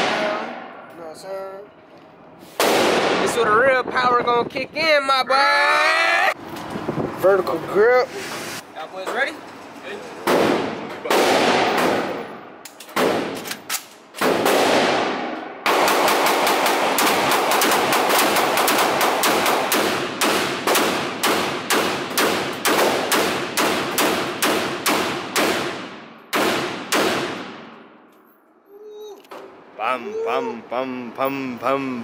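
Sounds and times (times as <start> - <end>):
gunshots with ringing echo: 0.0 - 1.0, 10.3 - 13.4, 14.2 - 28.0.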